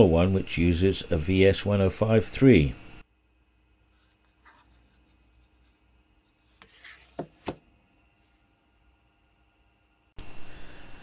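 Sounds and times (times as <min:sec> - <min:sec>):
faint handling and rubbing: 0:03.8 - 0:08.6.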